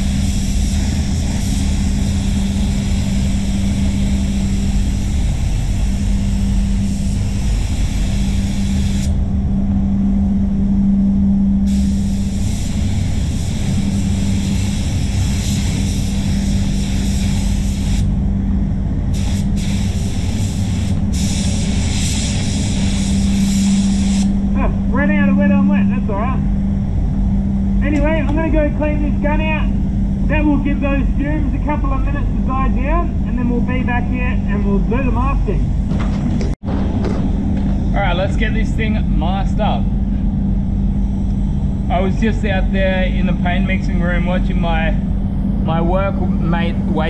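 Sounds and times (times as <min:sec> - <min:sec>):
spray gun hissing: 0:00.0 - 0:09.2, 0:11.7 - 0:18.2, 0:19.1 - 0:24.4
spray booth fans humming: 0:00.0 - 0:47.0.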